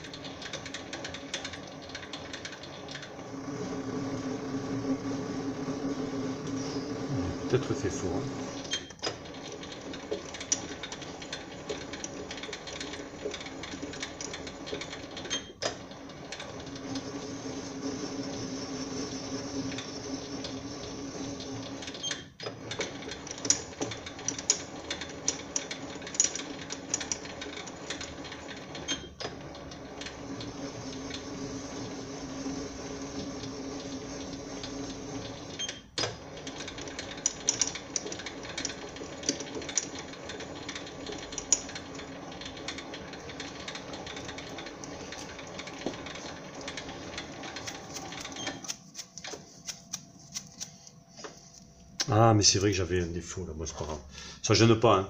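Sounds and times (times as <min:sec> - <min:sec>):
lathe humming: 0:00.0 - 0:22.0, 0:22.6 - 0:50.2
crackling of metal cutting: 0:07.5 - 0:50.8.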